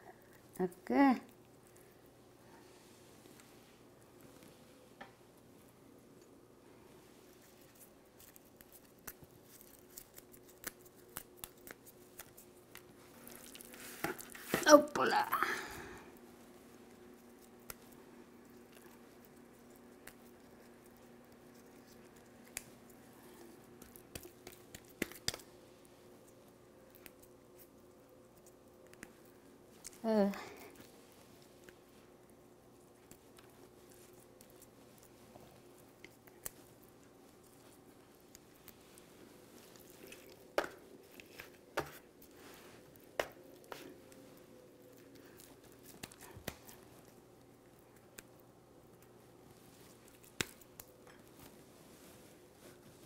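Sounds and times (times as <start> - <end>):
low steady hum: 0.0 - 53.0
herb sprigs stripped by hand: 7.6 - 15.0, 17.2 - 25.5, 49.8 - 51.6.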